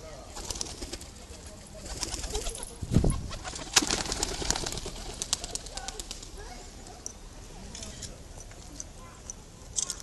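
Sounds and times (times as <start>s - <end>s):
feathers rattling in dry clicks: 7.0s - 10.0s.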